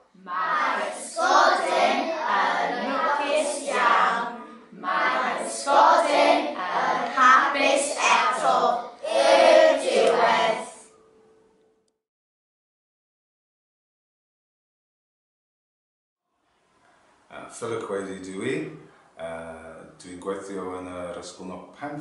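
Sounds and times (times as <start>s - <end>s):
young children chanting: 0.3s - 10.9s.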